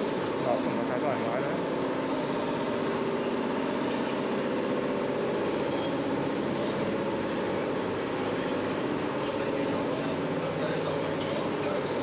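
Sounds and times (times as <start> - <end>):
mechanical hum and rumble: 0.0 - 12.0.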